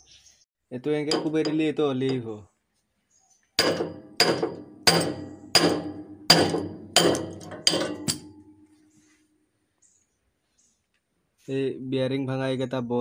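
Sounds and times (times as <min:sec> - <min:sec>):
hammer striking metal: 0:01.1 - 0:02.2, 0:03.6 - 0:08.8.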